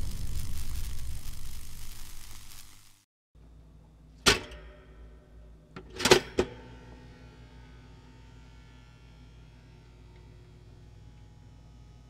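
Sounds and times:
low steady hum: 0.0 - 2.8, 3.4 - 12.0
toaster clicks and clacks: 4.2 - 5.1, 5.8 - 6.7.

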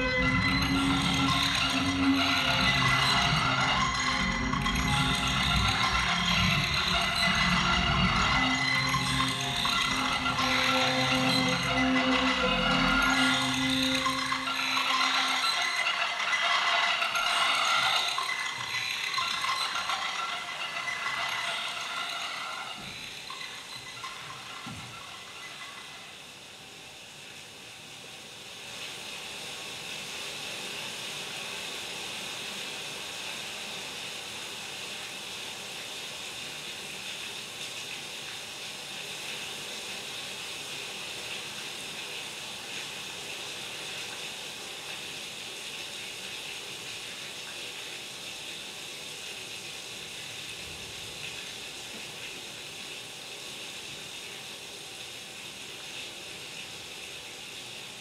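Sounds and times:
high electronic hissing: 0.0 - 26.8.

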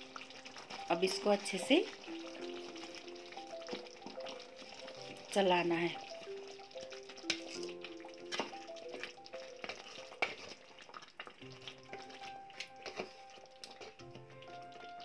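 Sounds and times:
gravy sizzling softly: 0.0 - 15.0
quiet background music: 0.0 - 15.0
wooden spatula scraping pan: 7.3 - 10.7, 11.6 - 14.0.

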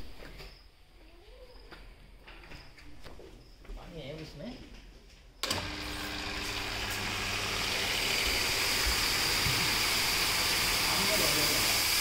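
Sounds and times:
pressure cleaning pump humming: 5.4 - 12.0
pressurised water spray hiss: 6.4 - 12.0.

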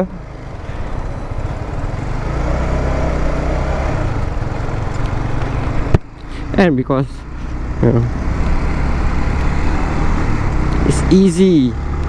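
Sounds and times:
motorcycle engine running: 0.0 - 12.0
road and wind noise: 0.0 - 12.0.

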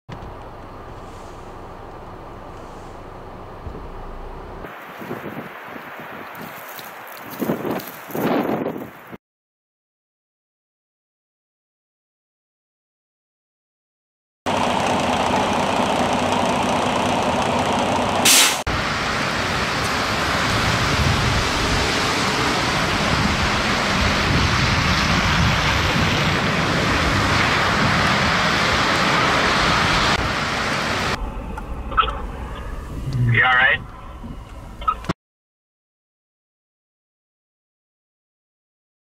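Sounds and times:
highway traffic rushing: 0.1 - 9.1, 14.5 - 35.1
wind: 0.1 - 9.2, 14.5 - 35.2
loud blast: 18.2 - 18.7.

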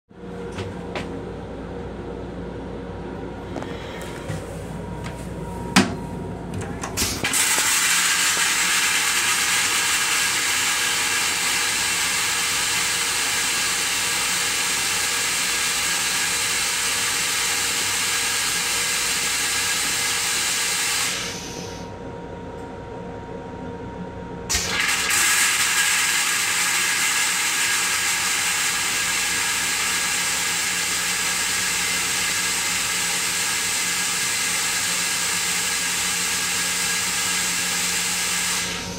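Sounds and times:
toilet flush click: 6.9 - 21.6, 24.5 - 38.8
toilet flushing hiss: 7.0 - 21.9, 24.5 - 38.9.

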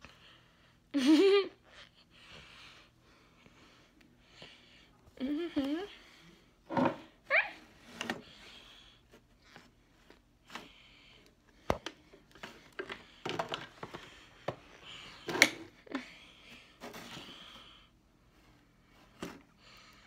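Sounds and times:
objects handled on nightstand: 6.7 - 7.1.

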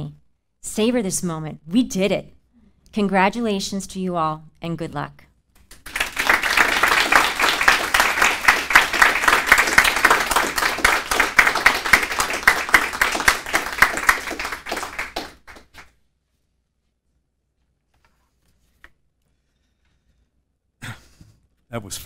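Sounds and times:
audience applauding: 5.7 - 15.9.

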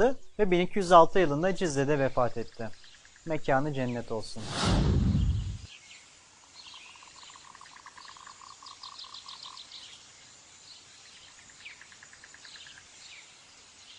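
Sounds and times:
loud burst of noise: 4.4 - 5.7
faint hiss: 12.4 - 13.9.

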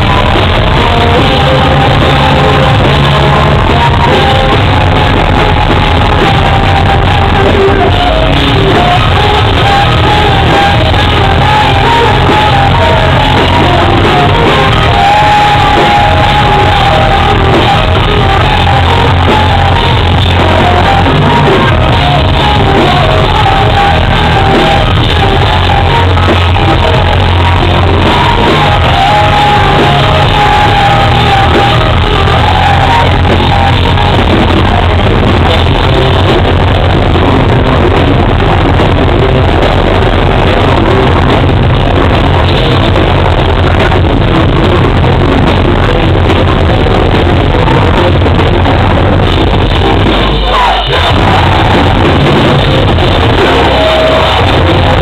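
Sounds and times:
distorted guitars: 0.0 - 55.0
drums: 0.0 - 55.0
shouted vocals: 0.0 - 55.0.

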